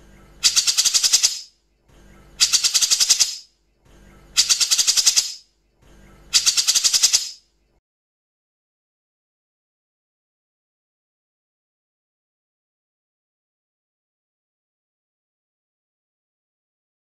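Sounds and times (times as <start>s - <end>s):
bird harsh rattling call: 0.4s - 1.5s, 2.4s - 3.5s, 4.4s - 5.5s, 6.3s - 7.4s.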